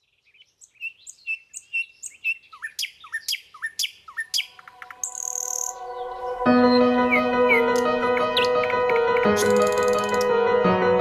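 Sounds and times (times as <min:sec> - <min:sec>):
songbird chirping: 0:00.0 - 0:10.3
soft music tones: 0:04.6 - 0:11.0.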